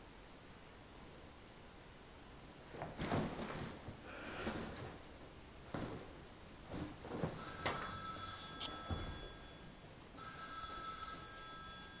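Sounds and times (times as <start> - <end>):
telephone ringing: 7.4 - 12.0.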